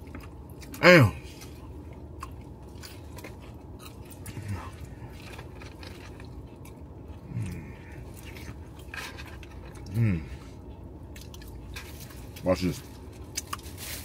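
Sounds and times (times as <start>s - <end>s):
person chewing food: 0.0s - 14.0s
person humming low: 7.2s - 7.9s, 9.9s - 10.4s.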